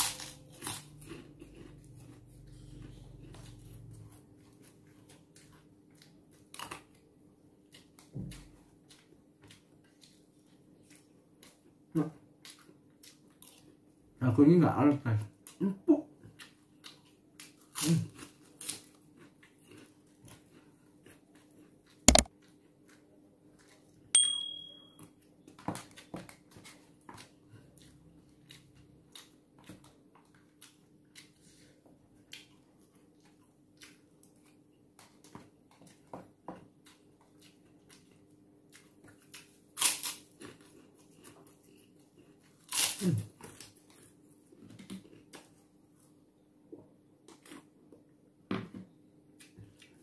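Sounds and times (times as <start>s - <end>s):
chewing: 0.1s - 6.9s, 7.6s - 13.8s, 16.2s - 24.0s, 25.8s - 36.2s, 36.8s - 46.1s
sharp click: 22.1s - 22.3s.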